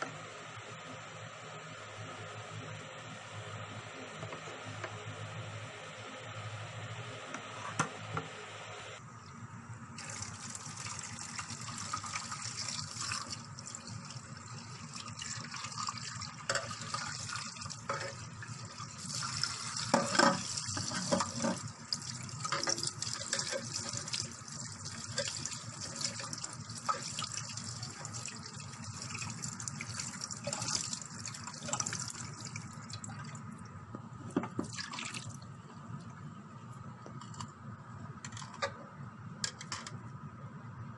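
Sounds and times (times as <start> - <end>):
strainer clattering: 19.8 - 21.6.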